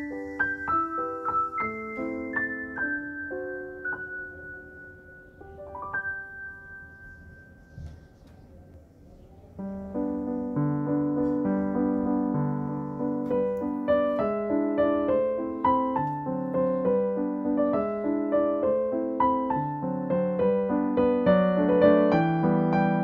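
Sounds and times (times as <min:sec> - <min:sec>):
gentle piano melody: 0:00.0 - 0:23.0.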